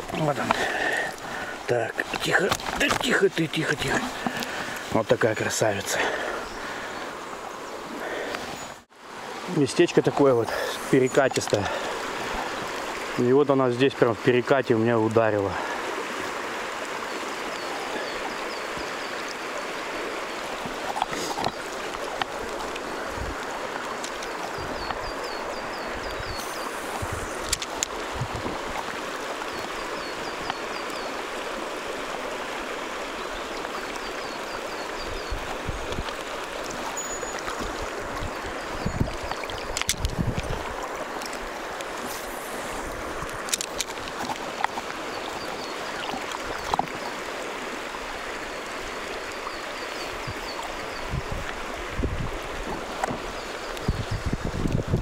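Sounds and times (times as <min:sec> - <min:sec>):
water rushing over stones: 0:00.0 - 0:55.0.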